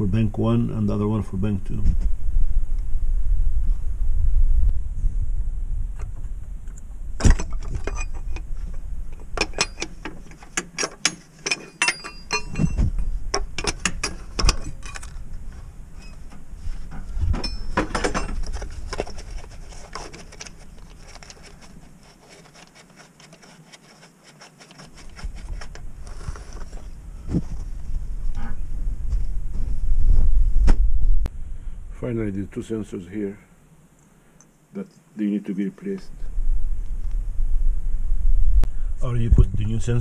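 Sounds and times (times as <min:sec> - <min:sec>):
metallic clicks of hand tools: 0:09.4 - 0:15.2.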